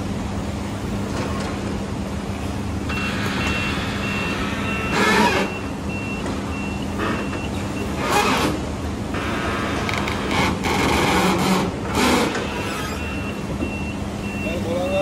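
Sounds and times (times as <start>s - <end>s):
reversing alarm beeping: 2.9s - 8.0s, 12.3s - 15.0s.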